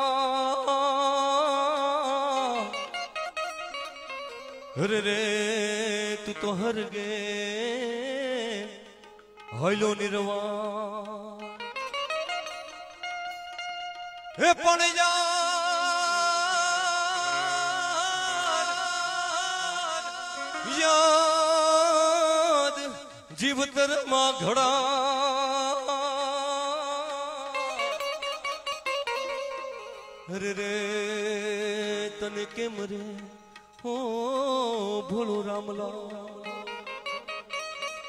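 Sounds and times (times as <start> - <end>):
instrumental accompaniment: 0.0 - 38.0
man singing long wavering notes: 14.4 - 37.1.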